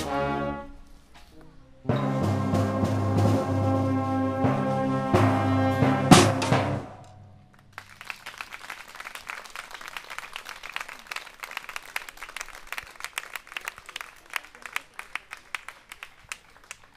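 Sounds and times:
audience applause: 7.5s - 16.9s.

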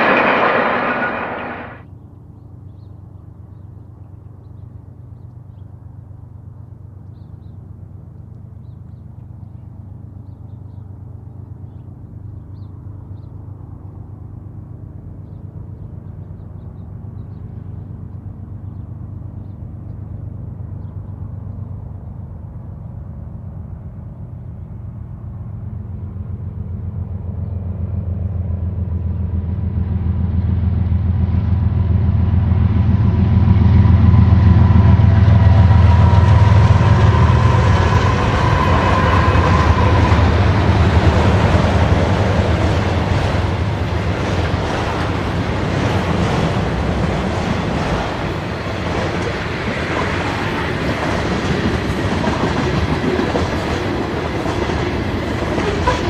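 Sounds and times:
locomotive diesel engine drone: 0.0s - 1.8s.

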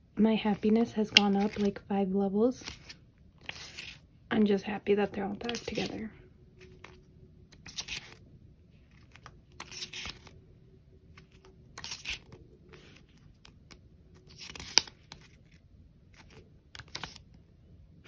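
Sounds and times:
paper rustling: 0.6s - 1.8s, 2.6s - 4.0s, 5.4s - 8.2s, 8.9s - 10.4s, 11.1s - 17.4s.

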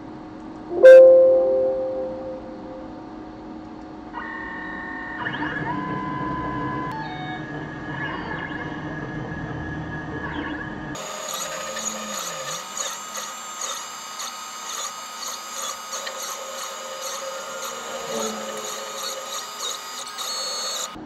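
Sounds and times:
stepper motors whining: 11.0s - 21.0s.

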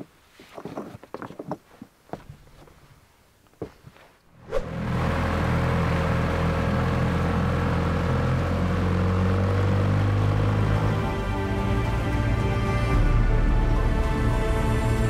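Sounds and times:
footsteps on rocks: 0.0s - 4.2s
wind: 0.0s - 10.3s.

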